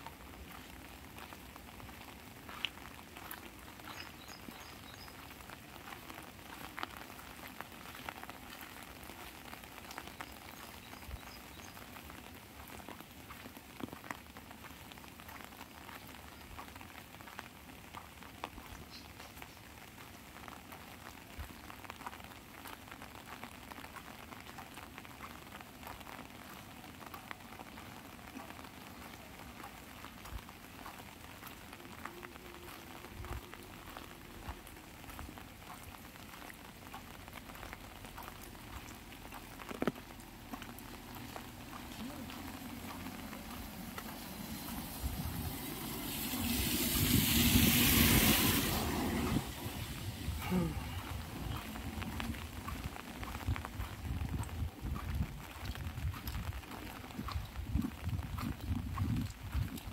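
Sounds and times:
rain pattering on umbrella: 0.0s - 59.9s
loud hiss: 46.1s - 49.9s.

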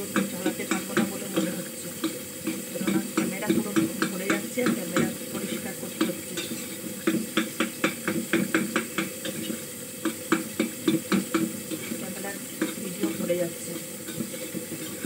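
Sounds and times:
cooking hiss: 0.0s - 15.0s
metal utensil scraping a pot: 0.0s - 15.0s.

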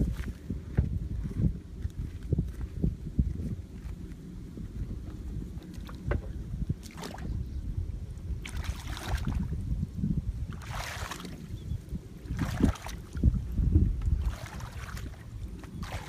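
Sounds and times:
wind rumble on microphone: 0.0s - 16.0s
splashes of wading in muddy water: 6.8s - 7.4s, 8.4s - 9.6s, 10.5s - 11.6s, 12.2s - 13.4s, 14.0s - 16.0s.

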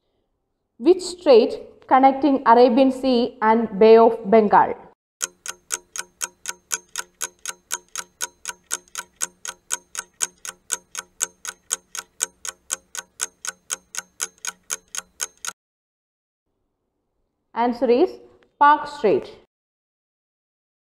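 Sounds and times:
clock ticking: 5.2s - 15.6s.

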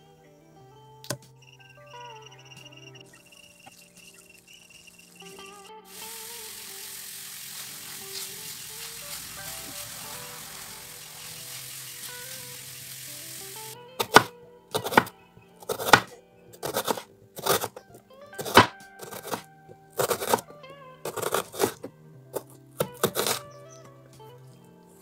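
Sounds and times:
knife slicing onion on wooden board: 14.0s - 17.8s, 18.4s - 19.4s, 20.0s - 20.4s, 21.1s - 23.4s.

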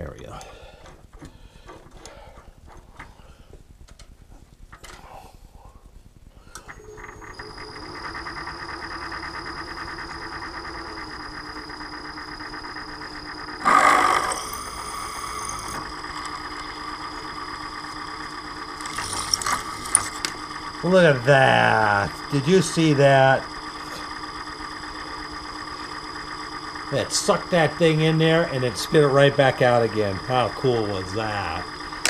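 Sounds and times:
milling machine spindle whine: 6.5s - 32.0s
end mill cutting steel: 6.7s - 24.4s.

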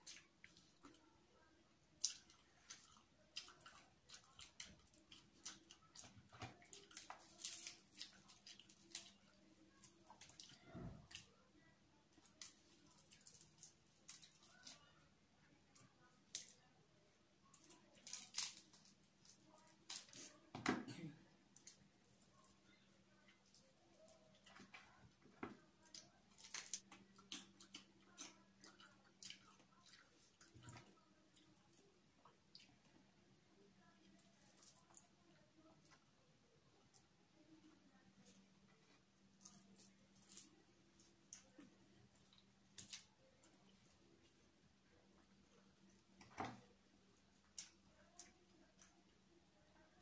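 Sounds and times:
crisp chicken crackling: 1.9s - 11.4s, 12.0s - 16.7s, 17.4s - 20.5s, 21.4s - 33.0s, 36.8s - 49.1s
wet chewing and mouth smacks: 25.9s - 31.5s.

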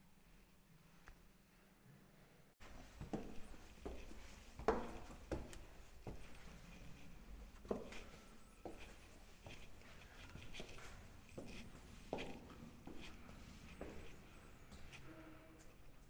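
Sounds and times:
footsteps on stone stairs: 2.8s - 7.0s, 7.6s - 14.9s.

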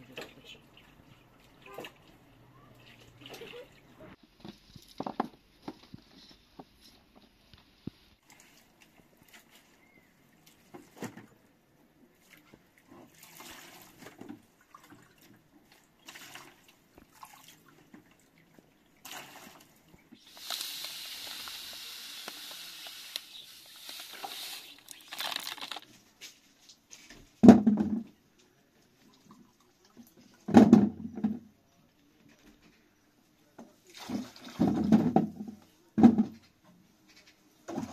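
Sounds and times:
water pouring from jug: 19.1s - 26.0s.

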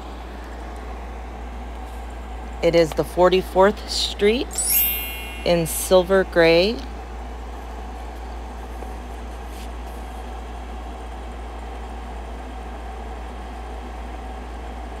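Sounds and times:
low hum with soft hiss: 2.6s - 6.8s.

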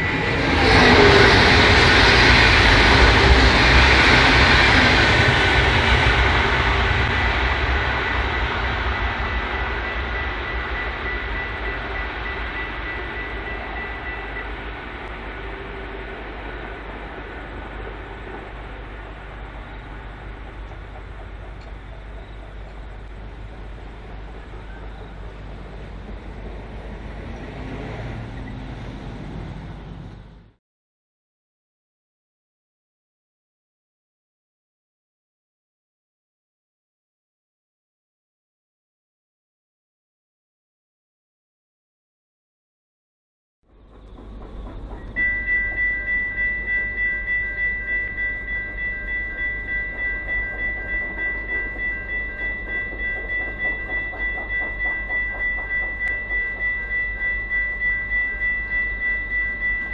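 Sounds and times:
distant diesel railcar rumbling: 0.0s - 30.6s, 43.7s - 59.9s
level crossing bell ringing: 8.0s - 24.4s, 45.0s - 59.9s.

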